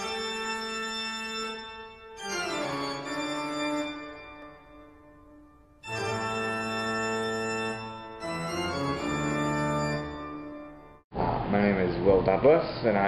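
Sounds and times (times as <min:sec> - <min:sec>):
organ sustained chords: 0:00.0 - 0:11.0.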